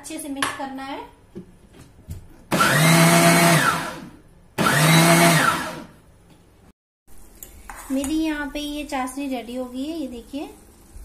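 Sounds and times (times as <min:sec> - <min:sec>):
mixer grinder motor whining: 0:02.5 - 0:05.9.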